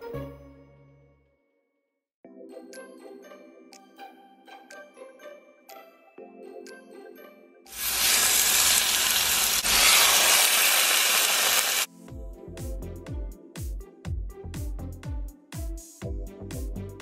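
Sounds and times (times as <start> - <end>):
chicken sizzling in hot oil: 7.7 - 11.9.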